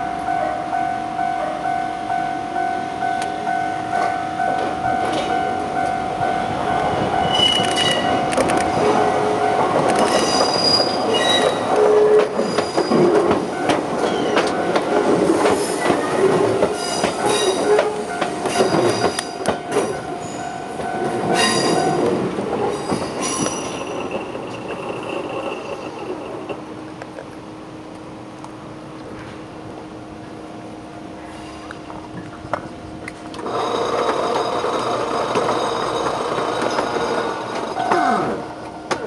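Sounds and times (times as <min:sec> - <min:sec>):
steady train whine: 0:00.0 - 0:39.0
wheels clicking over rail joints: 0:07.1 - 0:27.2, 0:32.2 - 0:39.0
train wheels squealing: 0:07.2 - 0:08.2, 0:10.0 - 0:13.2, 0:14.0 - 0:14.6, 0:16.8 - 0:20.5, 0:21.4 - 0:22.0, 0:22.7 - 0:26.5.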